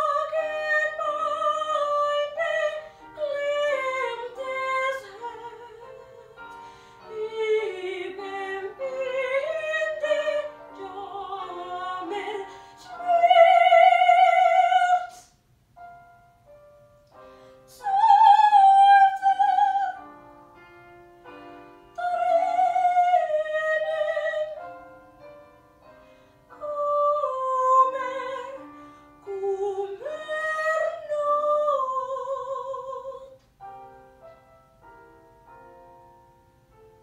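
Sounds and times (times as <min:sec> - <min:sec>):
woman singing operatic: 0:00.0 - 0:15.3, 0:17.7 - 0:20.1, 0:21.9 - 0:24.7, 0:26.5 - 0:33.4
piano accompaniment: 0:00.0 - 0:37.0.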